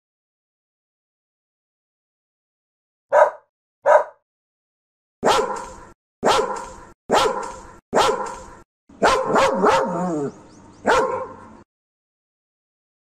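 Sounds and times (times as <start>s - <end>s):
dog barking loudly: 3.1s - 4.2s, 5.2s - 11.6s
dog barking short barks: 3.1s - 4.2s, 5.2s - 10.0s, 10.9s - 11.5s.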